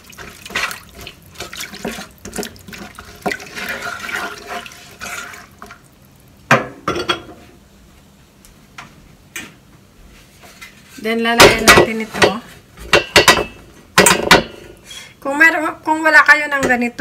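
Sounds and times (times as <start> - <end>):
spoon sloshing water in pan: 0.0 - 6.0.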